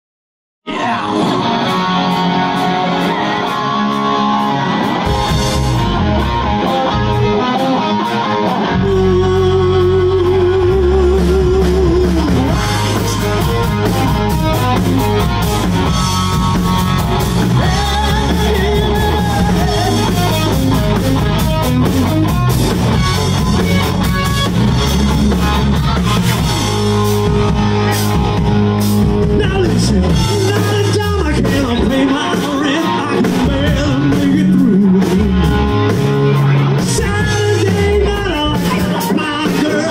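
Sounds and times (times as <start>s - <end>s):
man singing: 0.7s - 1.7s, 8.4s - 13.2s, 17.4s - 21.0s, 29.2s - 39.9s
live rock band playing: 0.7s - 39.9s.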